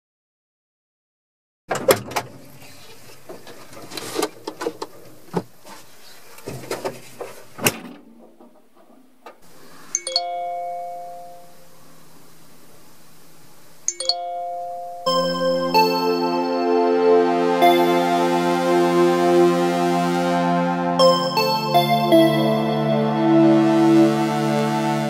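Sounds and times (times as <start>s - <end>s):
knocks and clatter of climbing: 1.7s - 9.4s
phone chiming ringtone: 10.0s - 11.5s, 13.9s - 19.4s, 21.0s - 24.2s.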